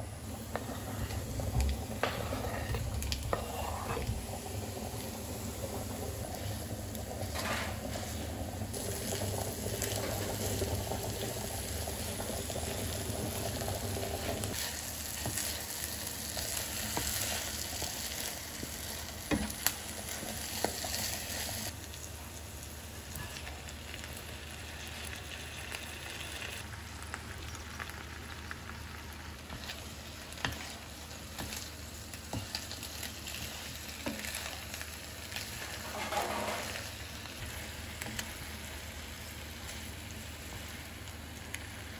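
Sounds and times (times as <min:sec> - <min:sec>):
sausage and onion sizzling in pan: 0:00.0 - 0:41.9
wooden spatula scraping pan: 0:00.5 - 0:04.3, 0:35.6 - 0:36.9.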